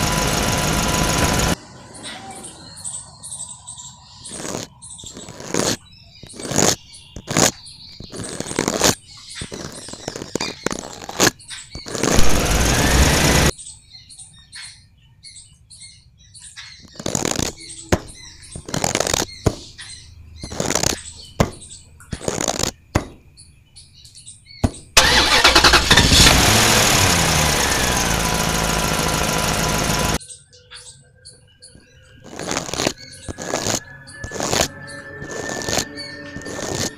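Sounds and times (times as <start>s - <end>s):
loud engine: 0.0s - 1.6s, 12.0s - 13.5s, 25.0s - 30.2s, 32.4s - 36.9s
birds chirping: 0.0s - 36.9s
shovel scraping sand: 4.2s - 13.5s, 16.9s - 19.6s, 20.4s - 21.0s, 22.1s - 22.8s, 32.2s - 36.9s.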